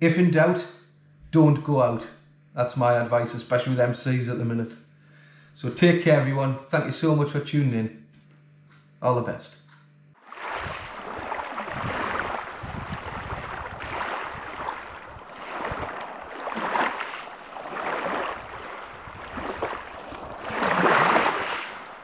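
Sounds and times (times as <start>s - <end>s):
sea waves on pebble beach: 10.3s - 22.0s.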